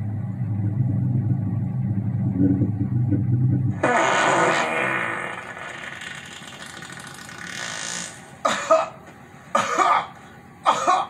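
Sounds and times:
hissing fart sound effect: 3.7 - 8.3
person coughing: 8.4 - 9.0, 9.6 - 11.0.

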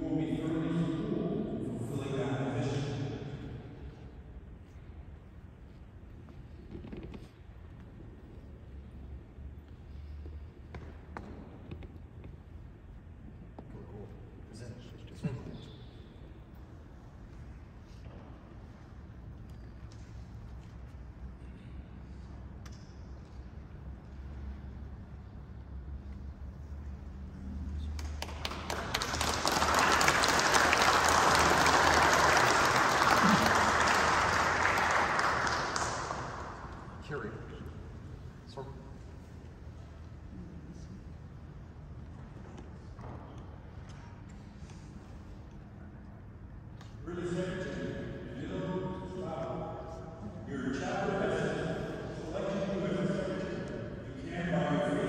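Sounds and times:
low room rumble: 0.0 - 55.0
congregation applauding: 27.9 - 37.1.

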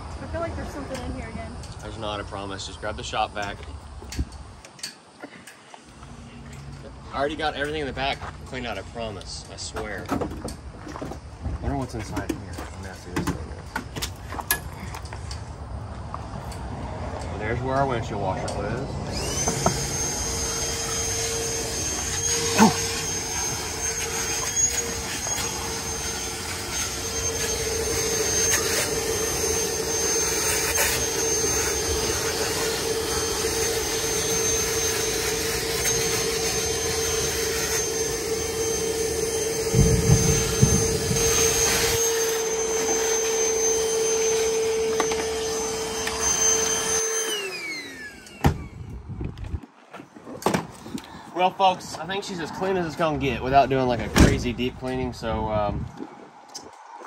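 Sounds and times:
shop vac whining: 17.4 - 49.2.

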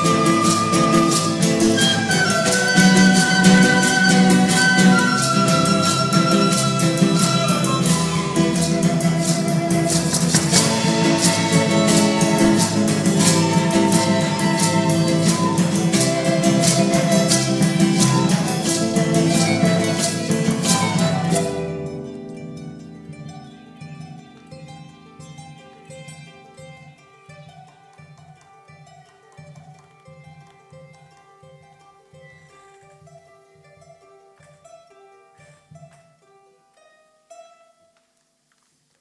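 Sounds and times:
end-blown wooden flute melody: 0.0 - 22.0
bowed strings: 0.0 - 38.0
strummed guitars: 0.0 - 38.1.

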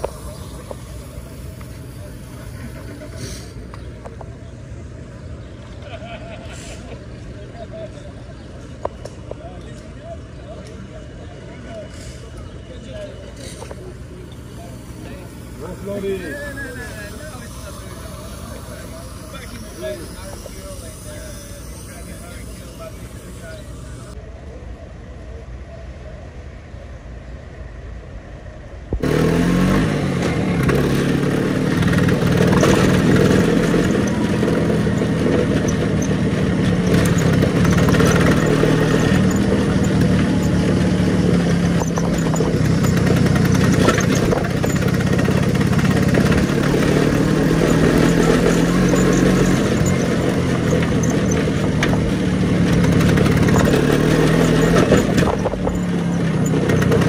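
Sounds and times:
scooter engine running: 0.0 - 4.4, 13.8 - 24.2, 29.0 - 57.0
wind and road noise: 0.0 - 57.0.

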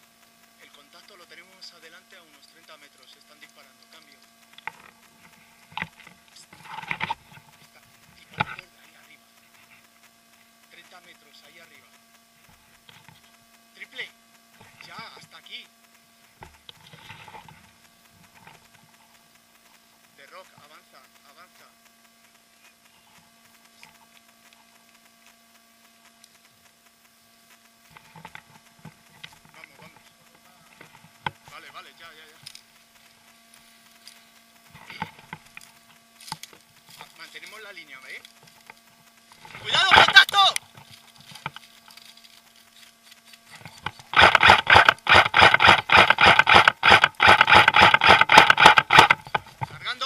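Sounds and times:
even hiss: 0.0 - 50.0
faint electrical hum: 0.0 - 50.0
faint ticks: 0.1 - 13.6, 14.3 - 49.9
airsoft rifle firing bursts: 39.7 - 40.5, 44.1 - 49.6.

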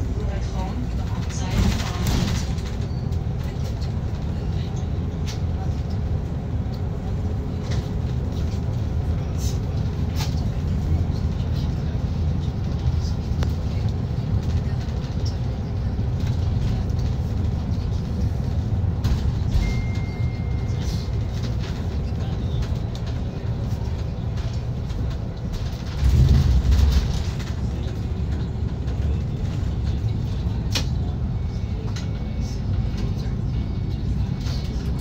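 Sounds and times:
vehicle rumbling: 0.0 - 35.0.

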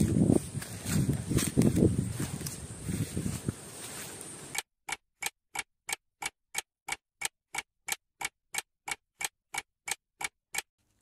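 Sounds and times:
sharp ticking: 4.5 - 10.7.

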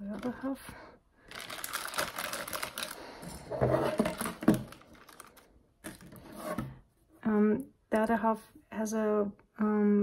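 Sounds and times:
metal screws rattling in plastic bag: 1.3 - 3.0.

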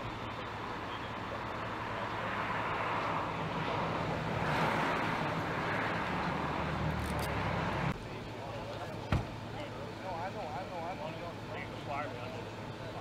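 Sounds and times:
steady low engine hum: 0.0 - 13.0
vehicle passing: 1.6 - 8.0.

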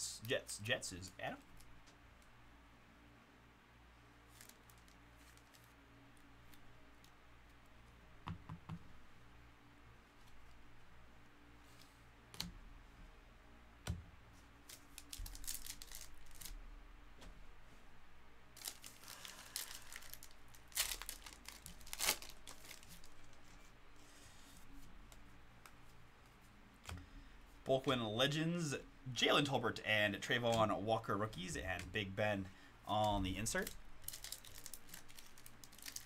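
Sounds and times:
wrapper tearing and crinkling: 4.3 - 5.8, 14.6 - 16.6, 18.6 - 23.4, 33.5 - 36.0.

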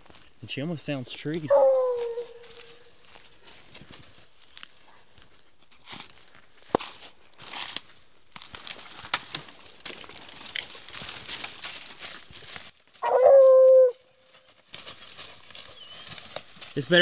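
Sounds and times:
hound baying: 1.4 - 2.8, 13.0 - 14.0
footsteps through dry leaves: 1.4 - 17.0.

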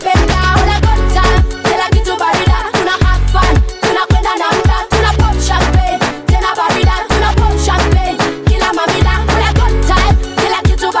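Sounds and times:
hi-hats: 0.0 - 11.0
synth chords: 4.6 - 10.5.

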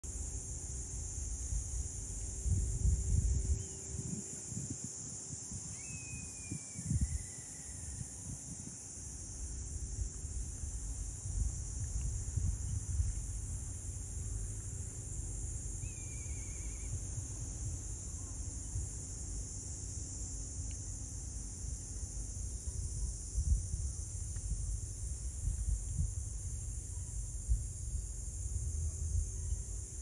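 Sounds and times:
insects singing: 0.3 - 24.8
bird trill: 5.8 - 7.8.

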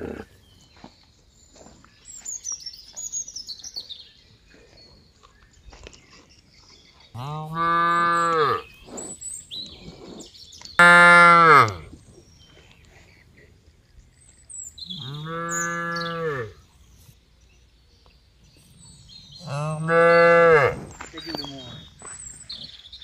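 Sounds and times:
cattle mooing: 10.8 - 11.8, 19.4 - 20.8.

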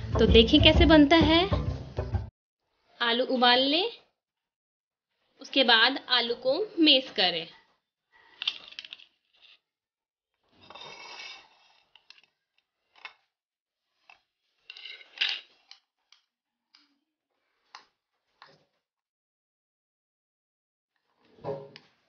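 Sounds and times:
spoon scraping a plate: 10.6 - 11.9.

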